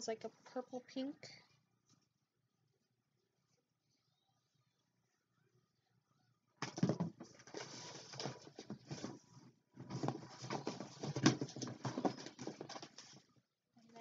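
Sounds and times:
packaging rustling: 6.7 - 13.2.

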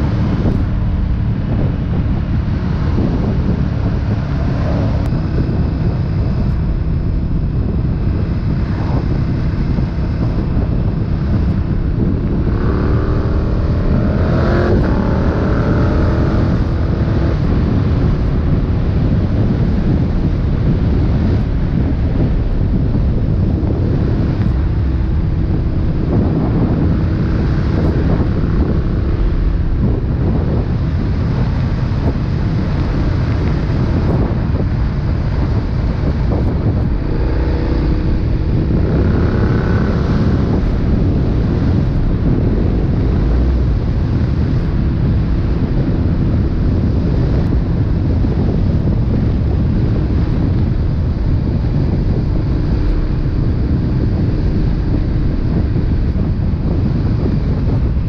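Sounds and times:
motorcycle engine running: 0.0 - 58.0
wind rushing over microphone: 0.0 - 58.0.

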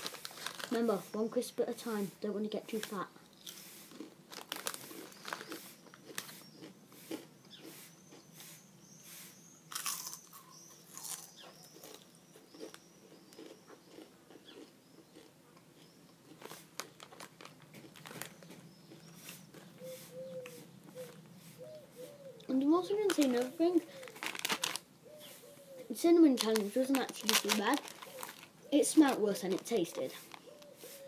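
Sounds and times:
crisps crunching: 0.0 - 1.2, 2.7 - 8.3, 9.7 - 19.8, 22.8 - 24.9, 26.2 - 30.7.

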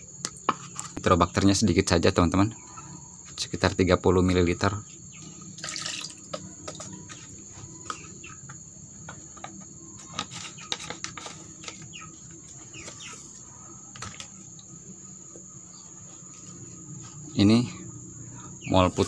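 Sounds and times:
crickets trilling: 0.0 - 19.0
liquid poured into plastic bowl: 5.6 - 6.2.

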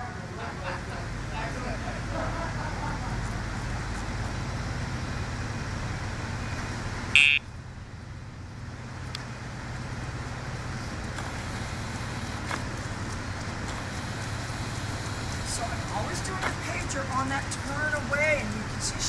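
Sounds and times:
road traffic: 0.0 - 19.0
electronic beep: 7.2 - 7.4.

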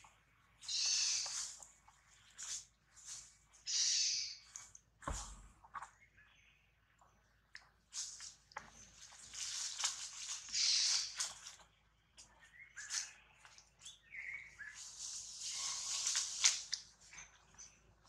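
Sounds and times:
dry leaves rustling and crackling: 8.9 - 11.6, 14.8 - 17.1.

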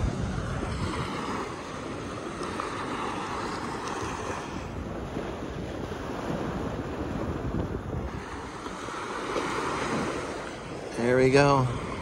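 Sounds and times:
small waves breaking on beach: 0.0 - 12.0
wind rumbling on microphone: 0.0 - 12.0.

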